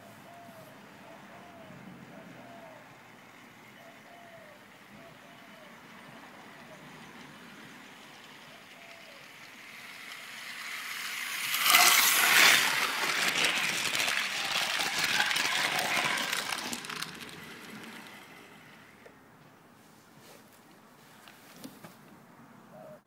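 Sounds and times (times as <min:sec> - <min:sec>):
model train wheels rattling: 0:04.6 - 0:19.1.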